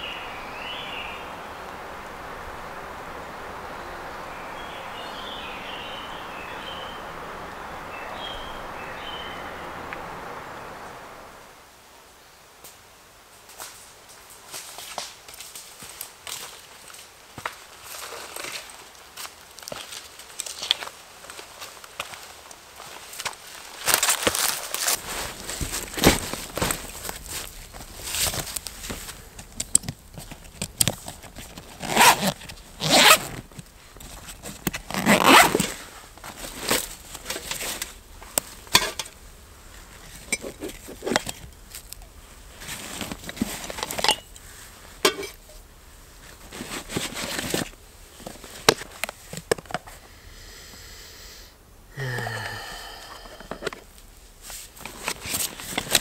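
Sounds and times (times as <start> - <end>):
fabric and gear rustling: 17.8 - 29.2, 30.1 - 39.0, 39.7 - 45.4, 46.2 - 49.6, 54.4 - 56.0
zipper rasping open: 31.6 - 33.4, 34.8 - 35.8, 40.3 - 41.4.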